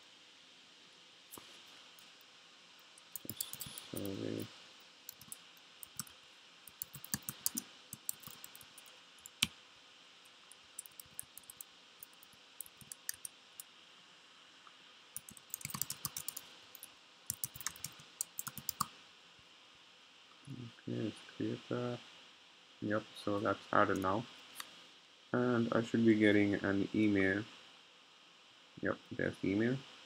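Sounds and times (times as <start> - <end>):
computer keyboard typing: 3.1 - 4.2, 5.1 - 6.1, 6.7 - 9.5, 10.8 - 13.3, 15.2 - 18.9.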